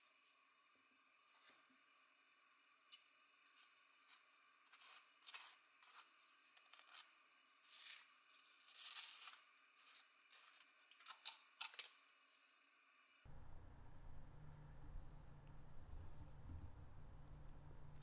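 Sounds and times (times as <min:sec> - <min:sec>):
knife scraping bagel: 0:03.5 - 0:11.8.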